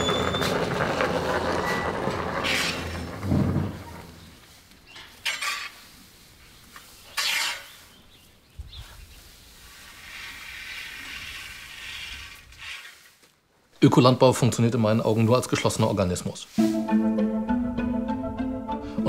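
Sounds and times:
hay rustling: 2.8s - 13.6s.

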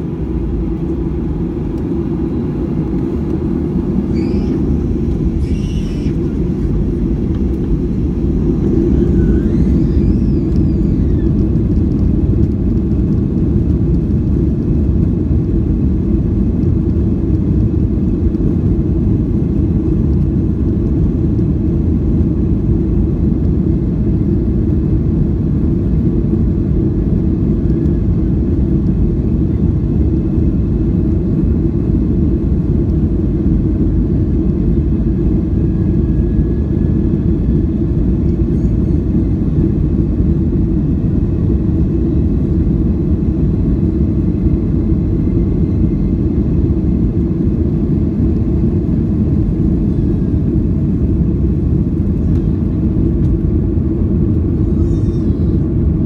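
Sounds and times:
low engine rumble in aircraft cabin: 0.0s - 56.0s.

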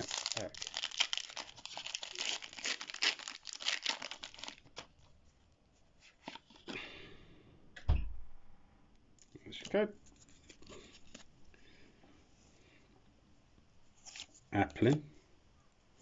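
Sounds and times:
foil wrapper tearing and crinkling: 0.0s - 4.9s
thump: 7.8s - 8.3s.

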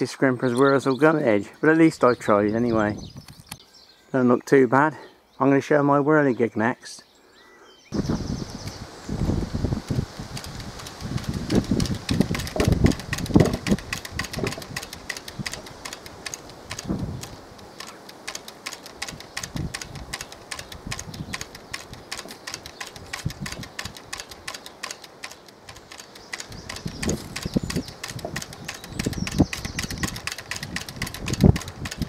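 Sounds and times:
wind gusts buffeting microphone: 7.9s - 32.0s
wooden whirligig clicking: 9.5s - 32.0s.

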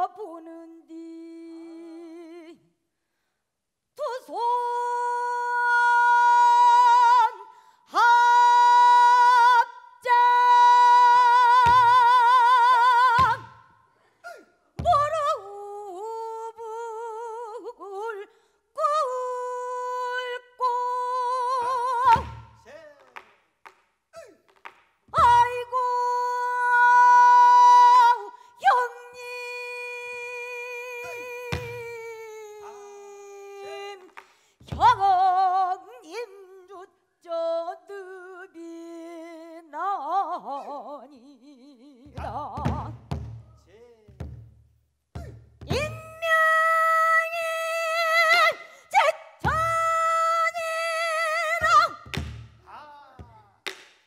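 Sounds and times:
woman singing long notes: 0.0s - 2.6s, 4.0s - 13.5s, 25.2s - 34.1s, 45.7s - 52.2s.

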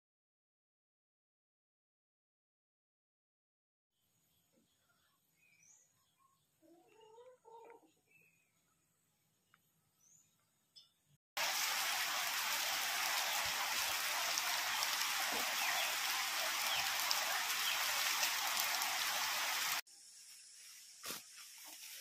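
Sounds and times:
steady rushing hiss: 11.4s - 22.0s.

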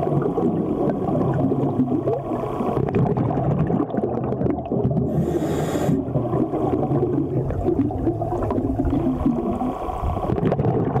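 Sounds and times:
exhaled bubbles rushing: 0.0s - 5.3s, 5.9s - 11.0s
regulator inhale hiss: 5.1s - 6.1s.

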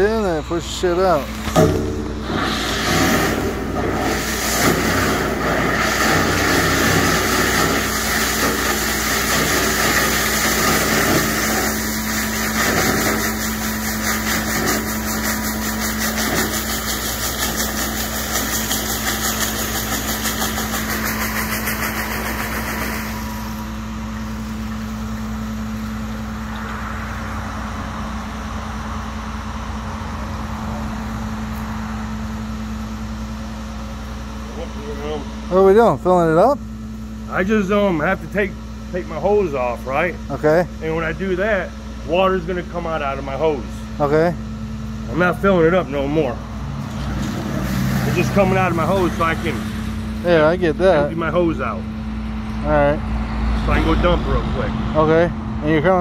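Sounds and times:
truck engine and pump droning: 0.0s - 56.0s
suction hose rushing hiss: 2.2s - 24.5s.

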